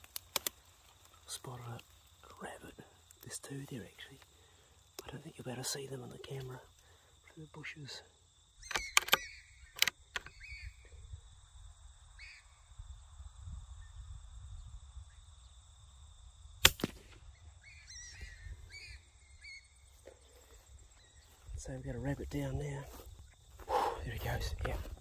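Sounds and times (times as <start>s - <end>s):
small clicks: 0.0s - 1.2s, 8.6s - 10.4s
bird chirps: 8.6s - 11.1s, 17.3s - 21.5s
low wind rumble: 10.3s - 25.0s
rifle shot: 16.6s - 17.3s.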